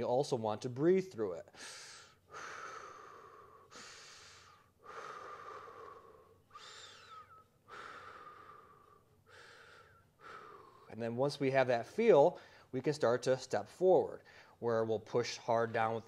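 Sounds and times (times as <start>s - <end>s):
man breathing deeply: 1.5s - 11.0s, 12.4s - 12.7s, 14.2s - 14.6s.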